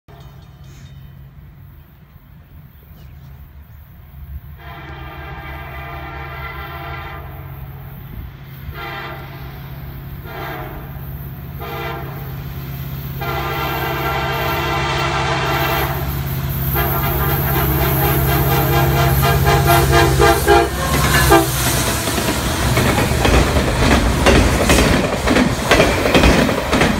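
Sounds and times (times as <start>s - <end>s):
low rumble of train: 0.1s - 26.9s
locomotive air horn blasts: 4.5s - 8.0s, 8.6s - 12.5s, 13.1s - 22.0s.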